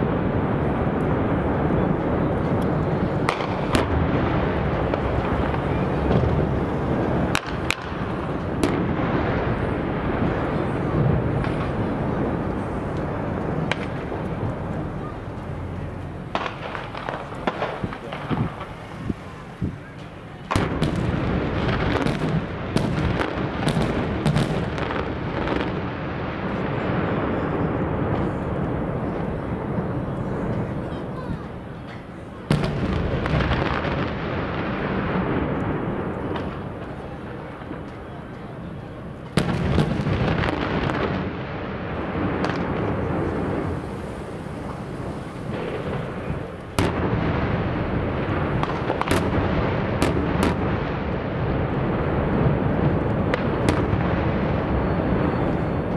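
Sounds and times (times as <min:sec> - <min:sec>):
loud rumbling din: 0:00.0 - 0:25.4
dynamite blasts: 0:00.0 - 0:55.9
long rolling echo: 0:00.0 - 0:55.9
sharp cracks: 0:02.0 - 0:09.3, 0:11.3 - 0:25.9, 0:39.2 - 0:51.8.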